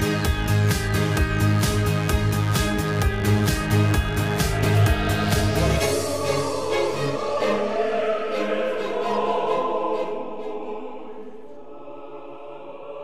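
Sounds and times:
choir singing held chords: 2.7 - 13.0.

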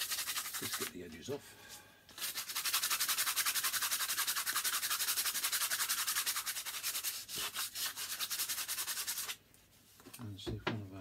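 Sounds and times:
sandpaper rasping on wood: 0.0 - 0.9, 2.2 - 9.4.

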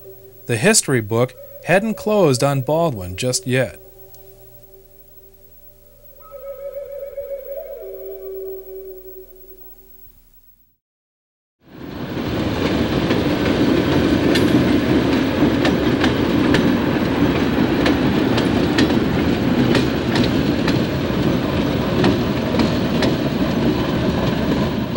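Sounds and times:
locomotive engine rumble: 11.8 - 24.9
wheels clicking over rail joints: 11.9 - 24.9.

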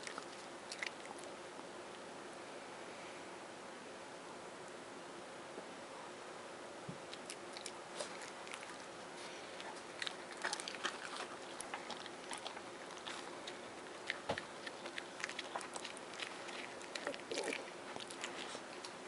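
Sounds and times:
dog chewing wet smacks: 0.0 - 1.4, 7.1 - 19.0.

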